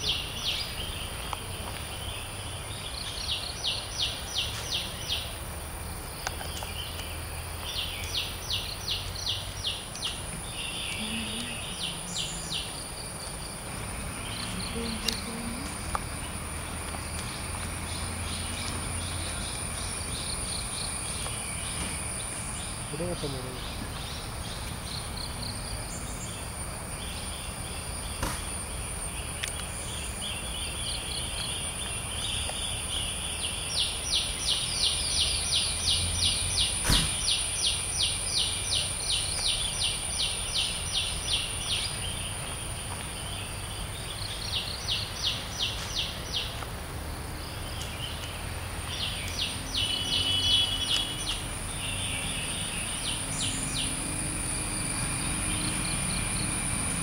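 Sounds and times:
rapid pulsed insect chirping: 0:00.0 - 0:57.0
high-pitched insect drone: 0:49.1 - 0:57.0.

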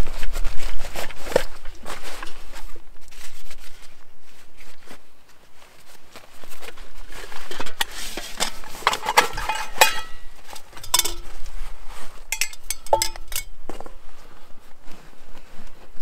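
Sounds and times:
metal cookware clinking: 0:08.4 - 0:11.4, 0:12.3 - 0:13.5.

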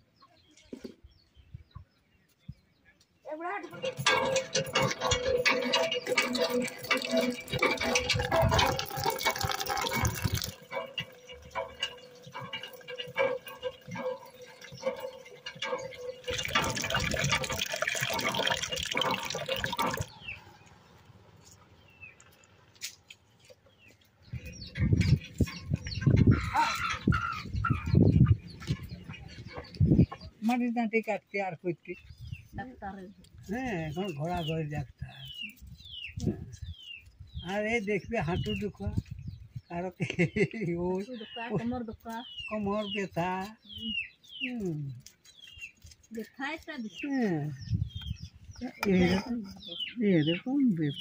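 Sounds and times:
water splashing into plastic bucket: 0:05.4 - 0:13.9, 0:15.5 - 0:20.1.

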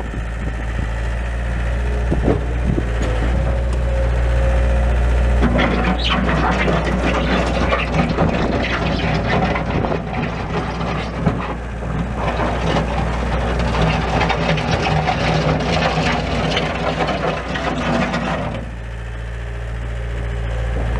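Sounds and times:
diesel engine under load: 0:00.0 - 0:20.9
driving over gravel: 0:05.0 - 0:18.9.

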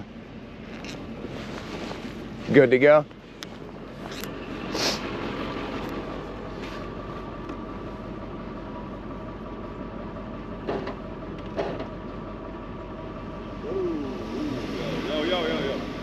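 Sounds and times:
faint whine: 0:13.1 - 0:16.0
winch drawing in cable: 0:13.7 - 0:16.0.

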